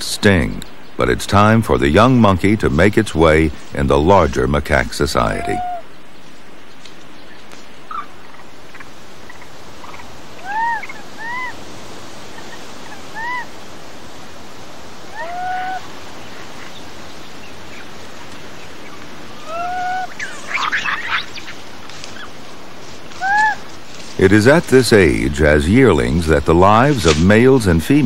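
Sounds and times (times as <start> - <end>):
harsh monkey calling: 5.2 - 5.9, 10.0 - 11.6, 12.4 - 13.5, 15.1 - 15.9, 19.4 - 21.6, 23.2 - 23.7
monkey coo calls: 5.3 - 5.9, 10.0 - 11.6, 12.4 - 13.5, 15.1 - 16.0, 19.3 - 21.6, 23.1 - 23.7.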